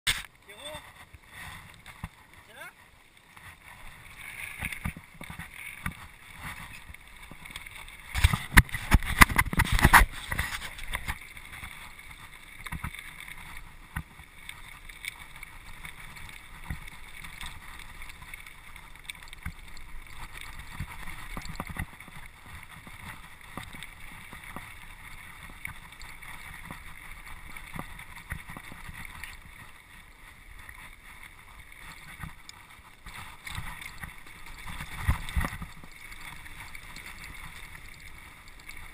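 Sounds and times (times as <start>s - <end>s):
bike rattling on gravel: 4.3s - 29.6s.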